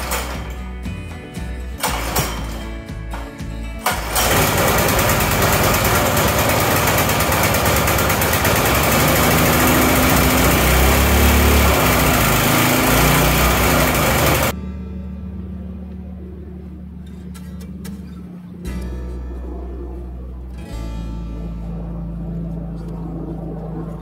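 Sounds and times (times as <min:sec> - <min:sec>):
lawn mower engine running: 0:00.0 - 0:14.6.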